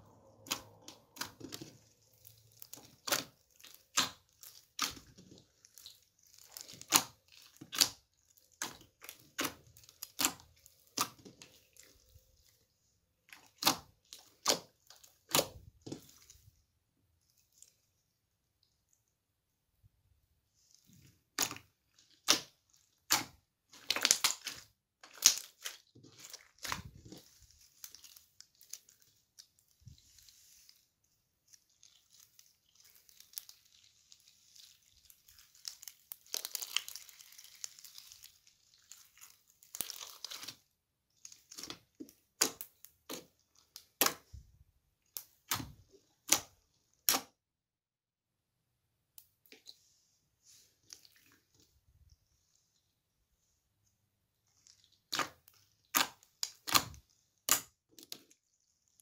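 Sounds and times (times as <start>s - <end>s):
slime popping and crackling: 0.0s - 16.4s, 20.7s - 30.6s, 31.4s - 44.4s, 45.0s - 47.4s, 54.5s - 59.0s.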